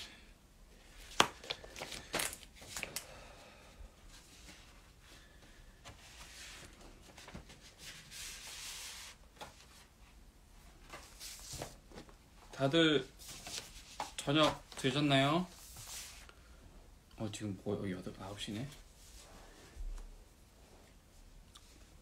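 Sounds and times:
paper and card rustling: 0:01.0 - 0:03.0.

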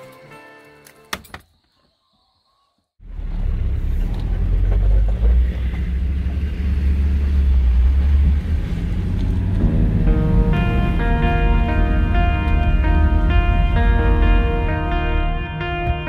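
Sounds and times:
music: 0:00.0 - 0:01.3, 0:09.6 - 0:16.0
vehicle driving on gravel: 0:03.0 - 0:13.8.

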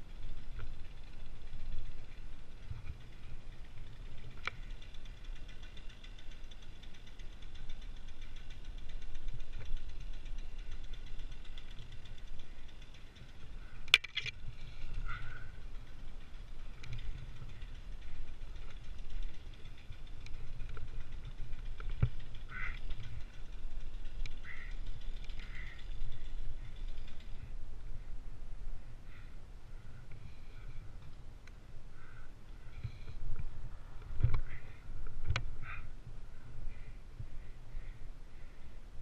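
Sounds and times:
small engine idling: 0:00.0 - 0:39.0.

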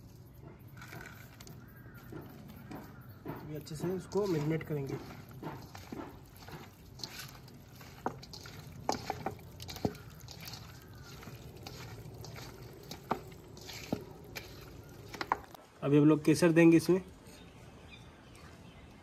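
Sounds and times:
hand squishing marinated chicken: 0:03.6 - 0:15.6.

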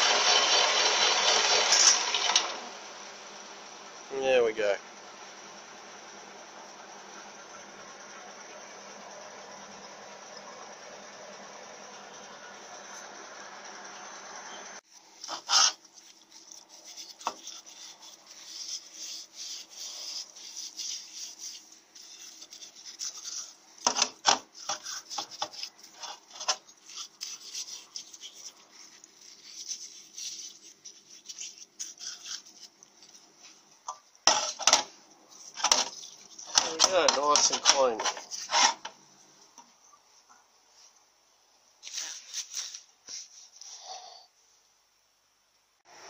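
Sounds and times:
lathe running: 0:00.0 - 0:04.2, 0:35.5 - 0:39.0
bristle brush scrubbing metal: 0:14.8 - 0:38.9.

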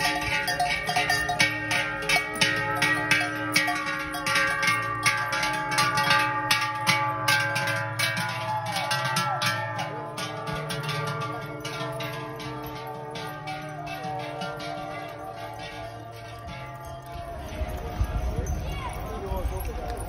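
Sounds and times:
cowbells clanging: 0:00.0 - 0:20.0.

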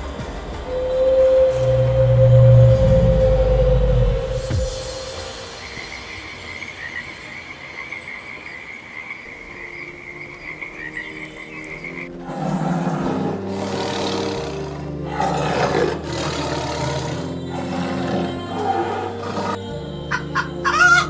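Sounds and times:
background music: 0:00.0 - 0:21.0
big cat growling roars: 0:12.2 - 0:19.6.

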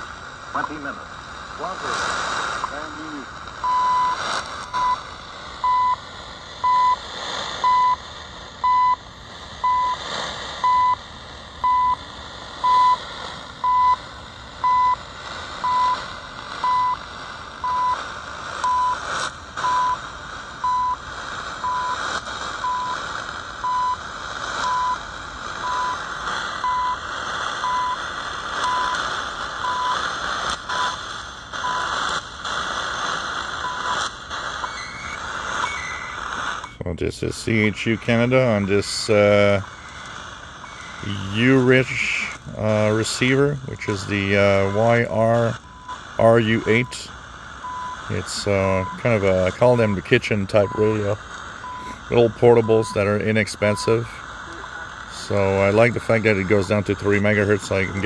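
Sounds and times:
radio static hiss: 0:00.0 - 0:58.0
static crackles: 0:00.0 - 0:58.0
short radio beeps: 0:02.6 - 0:03.0, 0:03.6 - 0:06.0, 0:06.6 - 0:07.0, 0:07.6 - 0:08.0, 0:08.6 - 0:09.0, 0:09.6 - 0:10.0, 0:10.6 - 0:11.0, 0:11.6 - 0:12.0, 0:12.6 - 0:14.0, 0:14.6 - 0:15.0, 0:15.6 - 0:17.0, 0:17.6 - 0:18.0, 0:18.6 - 0:20.0, 0:20.6 - 0:21.0, 0:21.6 - 0:23.0, 0:23.6 - 0:24.0, 0:24.6 - 0:25.0, 0:25.6 - 0:32.2, 0:33.0 - 0:58.0.

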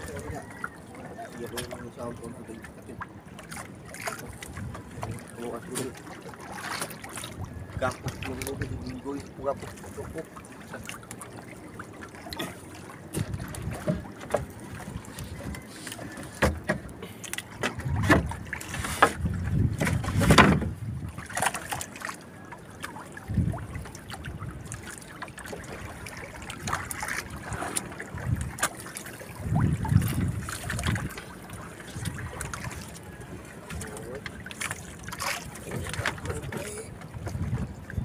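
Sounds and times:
water sloshing against boat: 0:00.0 - 0:38.0
knocks and thumps on hull: 0:12.3 - 0:21.8, 0:31.9 - 0:37.8.

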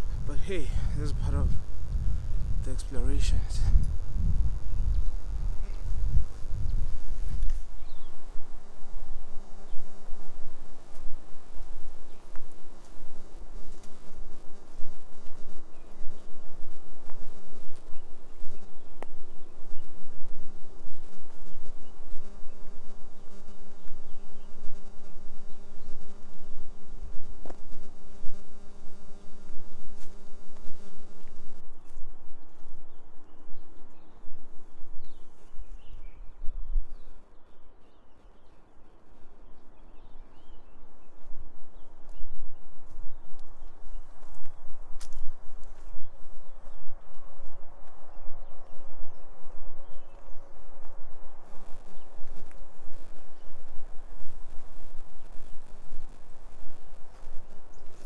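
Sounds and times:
footsteps on a dirt path: 0:00.0 - 0:24.5, 0:26.4 - 0:34.0, 0:41.2 - 0:58.0
low rumble on the microphone: 0:00.0 - 0:38.4
microphone electrical hum: 0:00.0 - 0:58.0.

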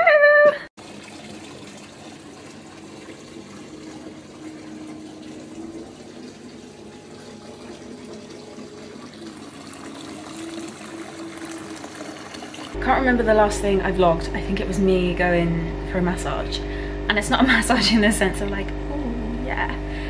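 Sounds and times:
running water rushing: 0:00.8 - 0:12.8.

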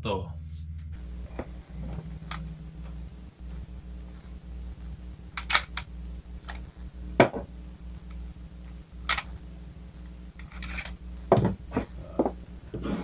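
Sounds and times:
low hum: 0:00.0 - 0:13.0
pistol handling clicks: 0:05.4 - 0:05.9, 0:09.1 - 0:09.3.

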